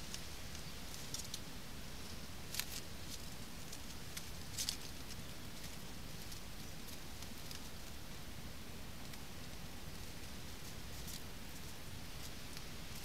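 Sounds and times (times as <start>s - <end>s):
dry reed stems crackling: 0.0s - 8.1s, 9.0s - 13.0s
low background hiss: 0.0s - 13.0s.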